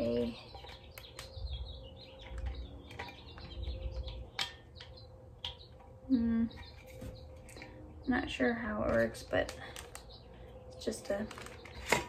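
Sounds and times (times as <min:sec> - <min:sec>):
high chirping squeaks: 0:00.0 - 0:07.6
packaging rustling and clicks: 0:08.9 - 0:10.1, 0:11.2 - 0:12.0.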